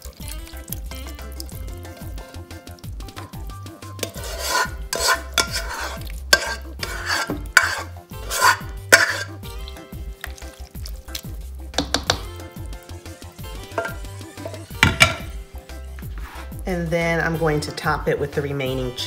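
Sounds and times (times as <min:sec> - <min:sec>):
spoon scraping wet food from pot: 0:03.9 - 0:12.1, 0:13.6 - 0:15.3.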